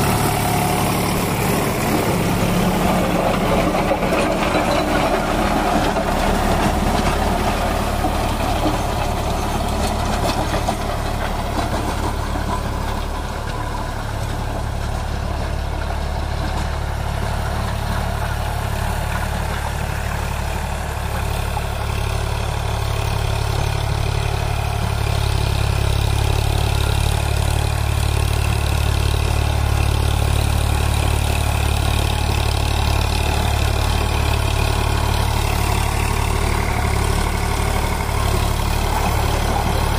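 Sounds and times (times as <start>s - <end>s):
rotavator blades churning soil: 0.0s - 15.3s, 23.9s - 39.9s
tractor diesel engine under load: 0.0s - 39.9s.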